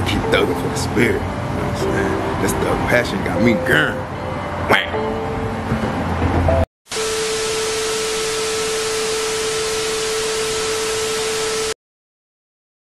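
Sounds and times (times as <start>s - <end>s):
steady mid-pitched tone: 6.9s - 11.8s
tv static hiss: 6.9s - 11.8s.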